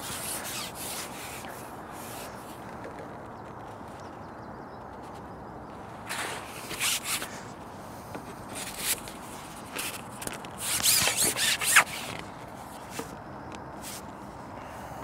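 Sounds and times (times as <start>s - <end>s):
steady low hiss: 0.0s - 15.0s
fishing pole sliding scrapes: 8.5s - 12.3s.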